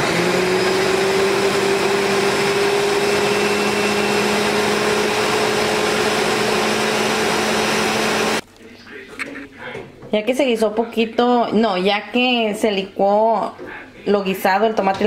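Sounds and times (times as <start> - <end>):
blender running: 0.0 - 8.4.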